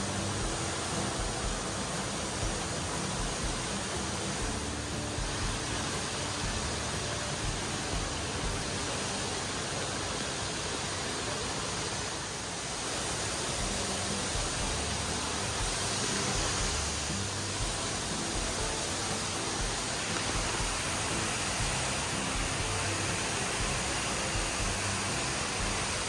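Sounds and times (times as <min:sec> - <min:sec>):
rushing falling water: 0:00.0 - 0:26.0.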